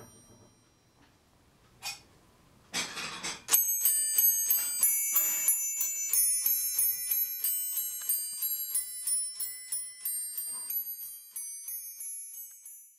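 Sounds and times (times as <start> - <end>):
small brass bells ringing a tune: 3.5 - 12.9.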